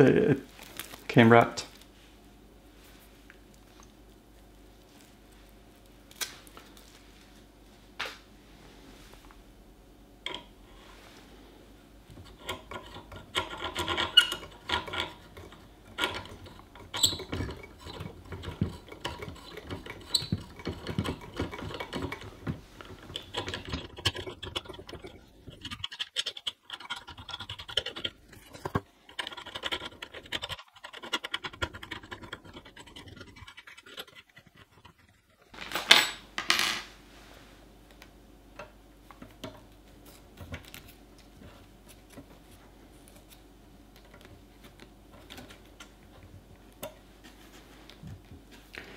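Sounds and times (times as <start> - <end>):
printer parts scraping and clicking: 12.3 - 35.1.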